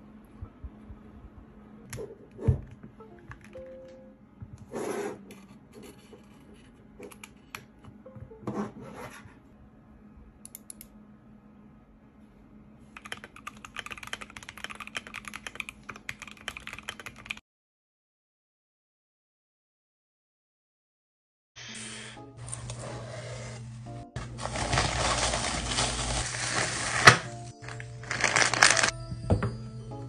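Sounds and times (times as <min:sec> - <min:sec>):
keyboard rubbing on desk mat: 0:04.6 - 0:06.8, 0:08.4 - 0:09.4, 0:22.5 - 0:27.3
rapid mechanical keyboard typing: 0:13.0 - 0:17.4.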